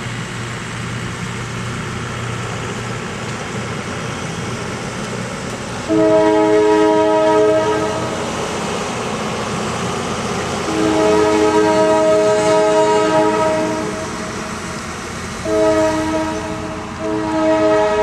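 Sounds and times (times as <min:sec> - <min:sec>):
train air horn blasts: 0:05.9 - 0:08.2, 0:10.7 - 0:14.1, 0:15.4 - 0:18.0.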